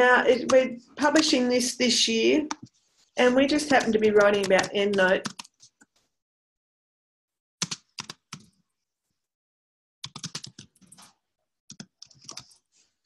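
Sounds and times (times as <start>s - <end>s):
typing on computer keyboard: 3.5s - 5.8s, 7.6s - 8.5s, 10.0s - 11.1s, 11.7s - 12.6s.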